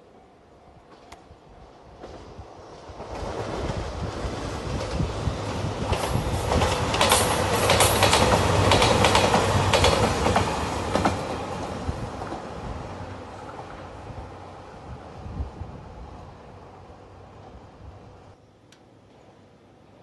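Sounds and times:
wheels clacking on rail joints: 4.7 - 12.5.

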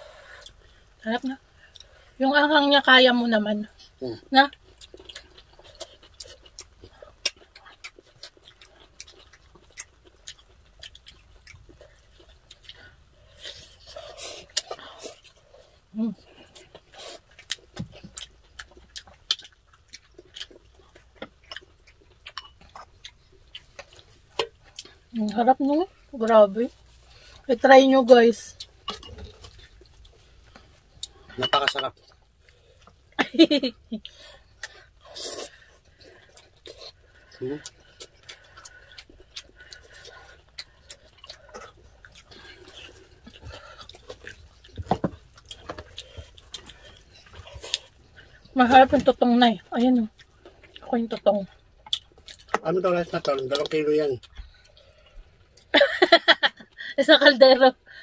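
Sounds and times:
wet chewing clicks and smacks: 4.0 - 25.6, 34.0 - 48.6, 49.4 - 55.7.

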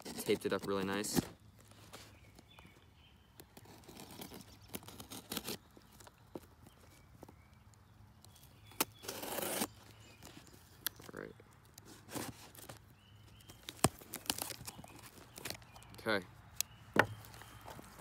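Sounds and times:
packing tape tearing: 3.5 - 6.1, 8.7 - 15.9
knife clicking and scraping tape: 8.7 - 9.8.

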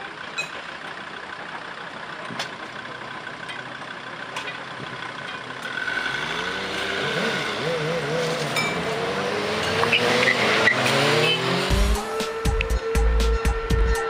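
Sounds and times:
road noise: 0.0 - 14.0
motorcycle engines pulling away: 4.8 - 12.9.

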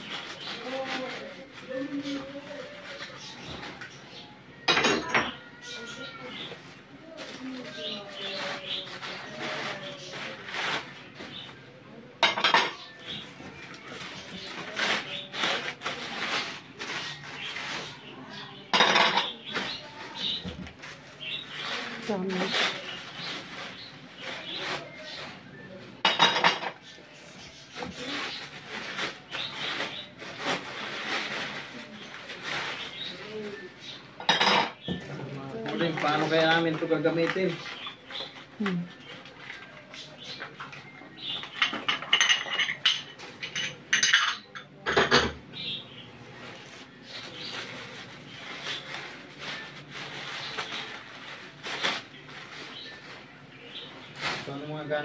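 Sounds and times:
newspaper rustling and crumpling: 0.0 - 4.0, 5.4 - 11.6, 13.0 - 18.2, 19.3 - 25.5, 27.7 - 33.8, 46.2 - 55.0
ceramic dishes clinking: 26.0 - 26.8, 41.6 - 45.4.

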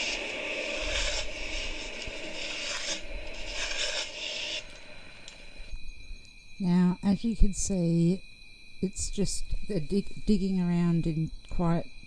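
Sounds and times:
shovels scraping through crusty snow: 0.0 - 4.8.

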